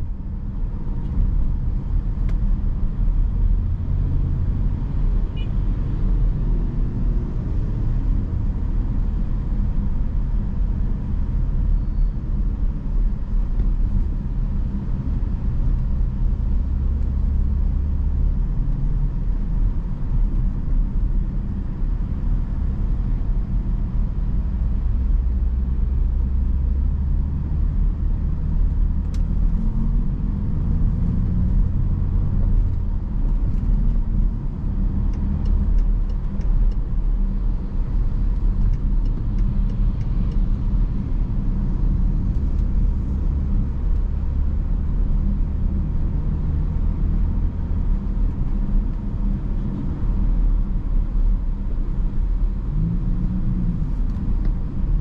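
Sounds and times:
car engine and road rumble: 0.0 - 55.0
faint light ticks: 29.0 - 29.3, 35.0 - 36.8, 38.3 - 40.4.

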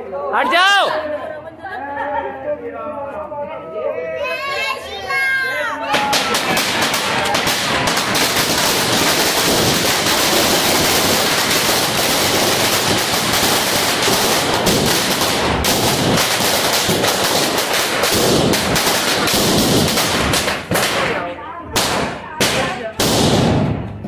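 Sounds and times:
firecrackers crackling: 5.9 - 24.0.

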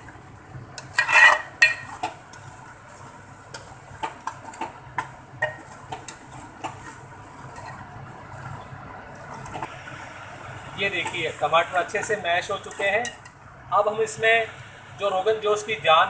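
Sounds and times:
spoon scraping metal pot: 0.8 - 2.1, 5.4 - 7.9.

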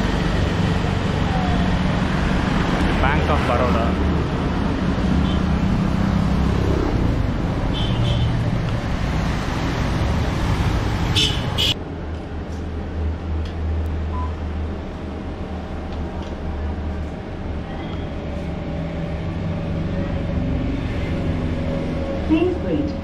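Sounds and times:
street traffic noise: 0.0 - 23.0.

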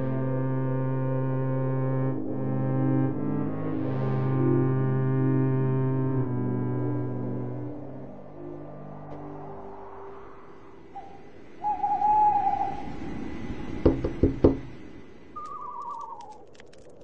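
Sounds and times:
owl hooting: 10.8 - 13.8, 15.4 - 16.4
quick sharp knocks: 13.9 - 14.7.

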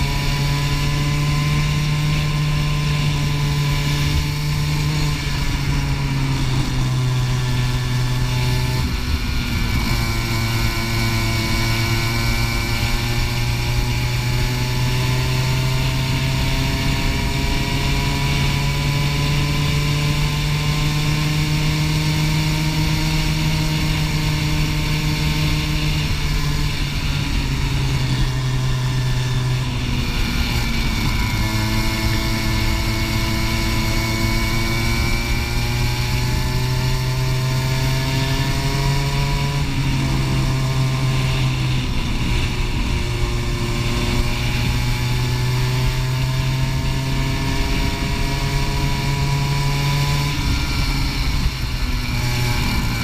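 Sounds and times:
go-kart engine racing: 0.0 - 53.0.

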